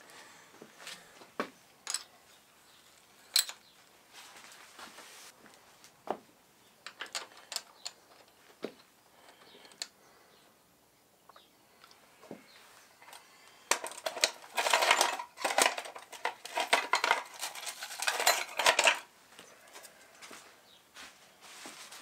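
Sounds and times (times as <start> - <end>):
metal clicks and clinks: 1.8 - 2.1, 3.2 - 3.6, 6.8 - 8.4, 13.0 - 19.0.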